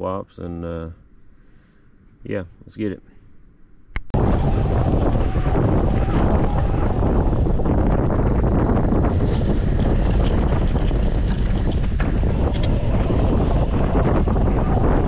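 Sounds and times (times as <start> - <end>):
tyres on grass and dirt: 4.0 - 15.0
wind rush on microphone: 4.1 - 15.0.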